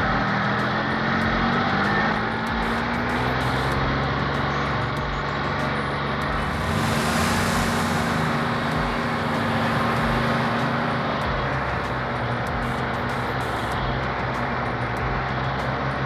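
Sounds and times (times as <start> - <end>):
car engine running: 0.0 - 16.0
road noise rushing: 0.0 - 16.0
steady hum: 5.0 - 14.1.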